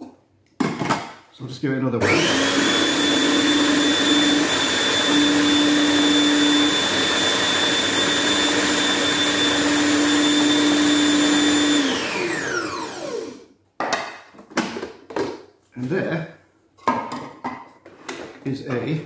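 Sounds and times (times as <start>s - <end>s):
food processor motor whine: 2.0s - 13.5s.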